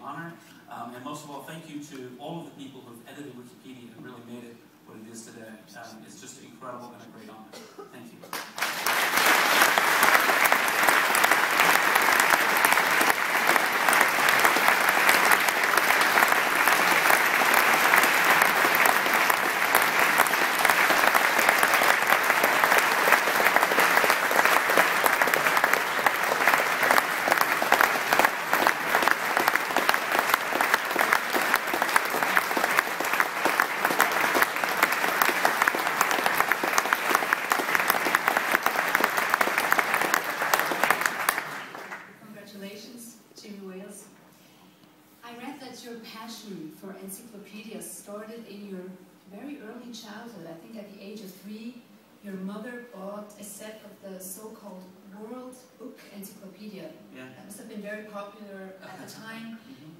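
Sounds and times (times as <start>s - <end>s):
audience applauding: 8.3s - 42.1s.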